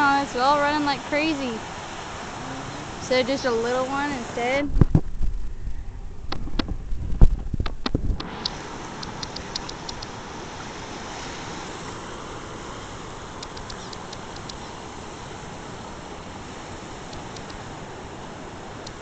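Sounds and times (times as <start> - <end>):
river floodwater rushing: 0.0 - 4.7, 8.2 - 19.0
faint high ticks: 7.6 - 10.2, 13.3 - 14.8, 17.1 - 17.6, 18.8 - 19.0.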